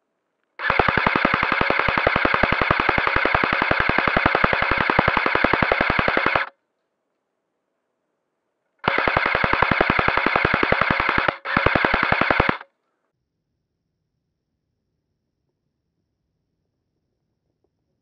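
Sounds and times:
airsoft gun full-auto bursts: 0.6s - 6.5s, 8.8s - 12.6s.

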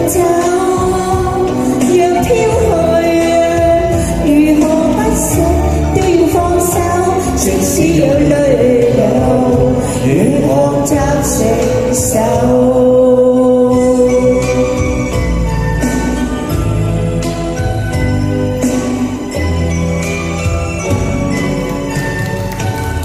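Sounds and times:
man and woman singing a pop duet: 0.0s - 15.2s
backing music with steady beat: 0.0s - 23.0s.

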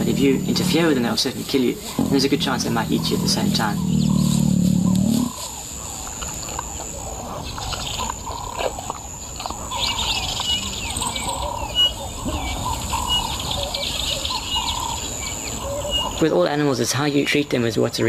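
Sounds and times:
birds calling and chirping: 0.0s - 18.0s.

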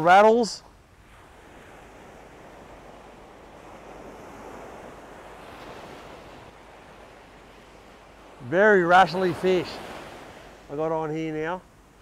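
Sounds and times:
ocean surf breaking: 0.0s - 12.0s.

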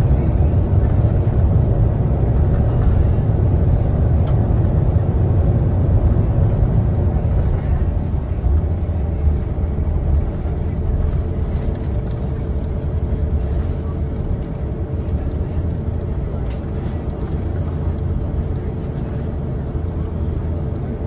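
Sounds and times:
jet engines running: 0.0s - 21.0s
wheels rumbling on runway: 0.0s - 21.0s.

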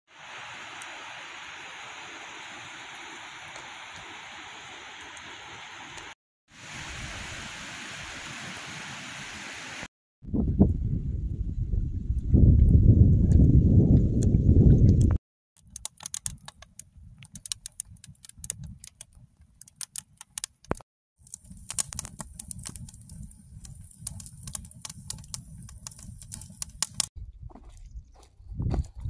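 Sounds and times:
campfire crackling and popping: 15.6s - 27.1s.

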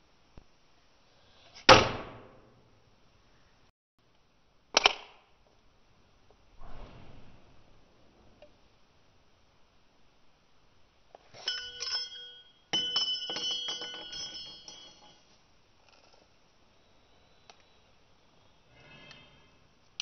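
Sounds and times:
small metal parts clinking: 11.3s - 15.4s
bell-like ringing: 11.4s - 15.4s.

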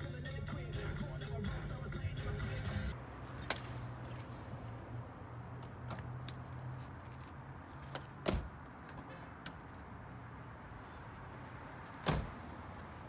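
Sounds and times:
car door clunk: 12.0s - 12.4s.

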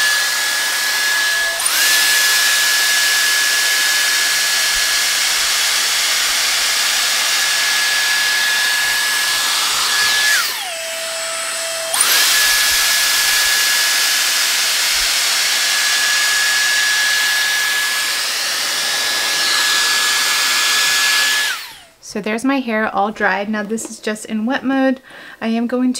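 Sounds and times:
hair dryer air rush and whine: 0.0s - 21.9s.

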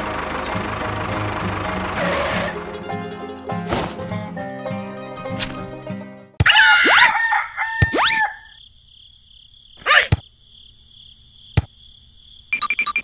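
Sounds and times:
rooster crowing: 6.4s - 8.6s.

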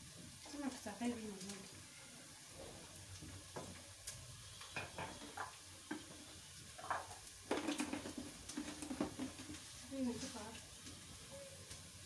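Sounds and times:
clatter on kitchen counter: 4.6s - 6.1s, 6.8s - 9.6s.

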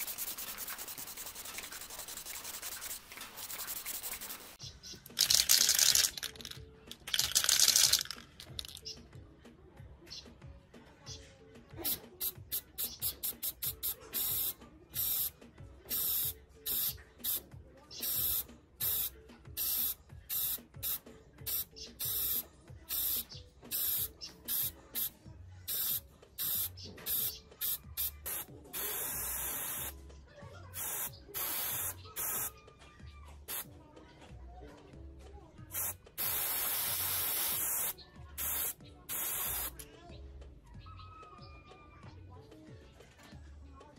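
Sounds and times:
spray paint can hissing: 0.0s - 9.0s, 11.8s - 15.3s, 15.9s - 17.4s, 18.0s - 25.1s, 25.7s - 30.0s, 30.8s - 32.5s, 33.5s - 33.7s, 35.7s - 39.8s.

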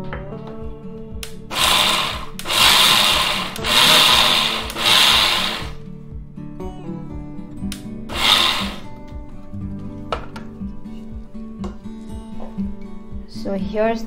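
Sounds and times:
soft background music: 0.0s - 14.0s
mixer grinder pulsing: 1.5s - 5.8s, 8.1s - 8.9s.

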